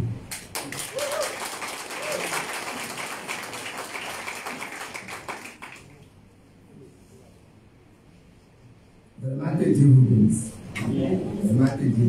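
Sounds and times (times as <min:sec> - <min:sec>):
audience applauding: 0:00.3 - 0:06.0.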